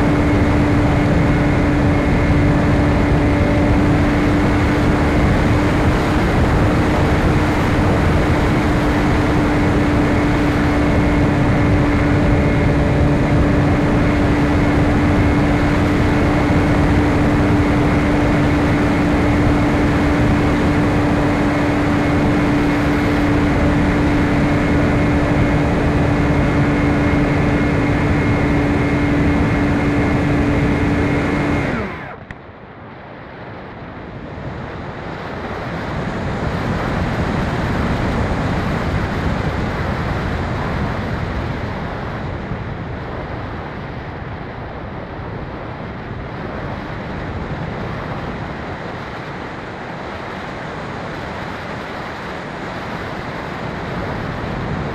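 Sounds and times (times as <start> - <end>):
electric motor and propeller: 0.0 - 32.5
wind rushing over airframe: 0.0 - 54.9.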